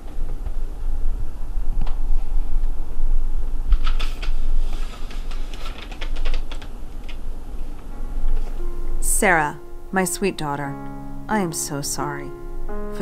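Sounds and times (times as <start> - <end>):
paper rustling and crinkling: 3.8 - 7.2.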